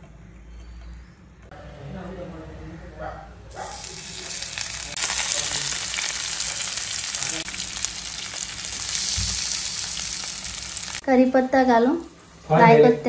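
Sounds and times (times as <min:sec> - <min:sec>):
fish sizzling in hot oil: 0:03.5 - 0:11.2.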